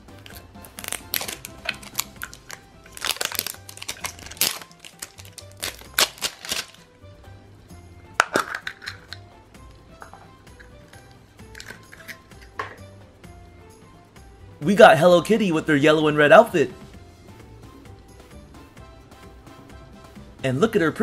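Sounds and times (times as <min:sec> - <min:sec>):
soft background music: 0:00.0 - 0:21.0
plastic wrap crinkling: 0:00.2 - 0:06.9
plastic capsule clicking open: 0:00.3 - 0:06.8, 0:08.2 - 0:09.2, 0:11.5 - 0:12.8.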